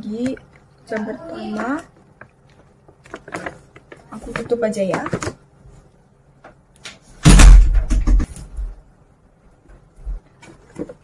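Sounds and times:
door thudding shut: 0:07.2 - 0:08.3.

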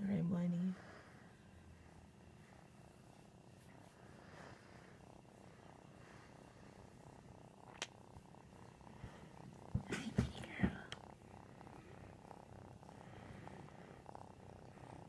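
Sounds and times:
cat purring: 0:00.0 - 0:15.0.

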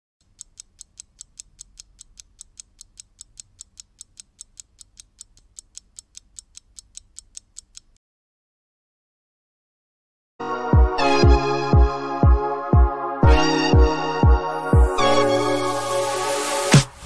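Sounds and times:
fast clock ticking: 0:00.2 - 0:08.0.

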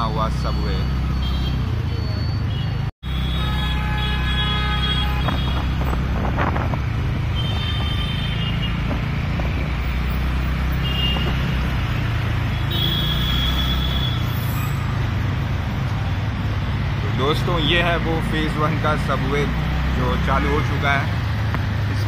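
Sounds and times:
vehicle engine and road noise: 0:00.0 - 0:22.0.

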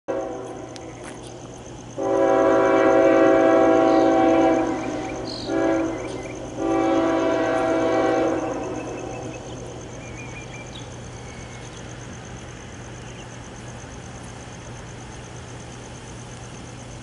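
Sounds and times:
locomotive air horn blasts: 0:00.1 - 0:00.8, 0:02.0 - 0:09.4.

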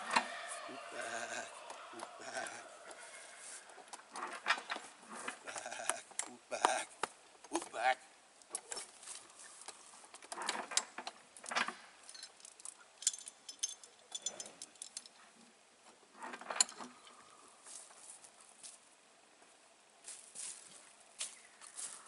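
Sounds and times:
chain and metal fittings clinking: 0:10.2 - 0:15.2.

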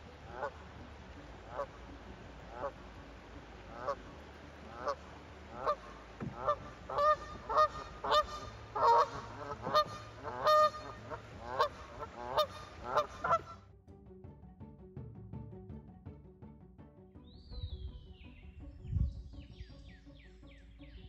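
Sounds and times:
geese honking: 0:00.0 - 0:13.6.

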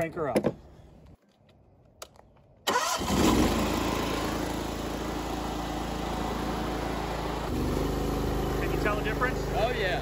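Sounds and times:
pressure washer engine running: 0:03.1 - 0:10.0.

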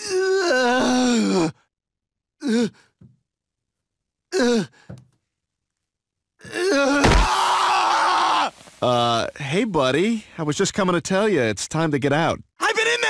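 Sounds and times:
cartoon baby groaning: 0:00.0 - 0:01.6.

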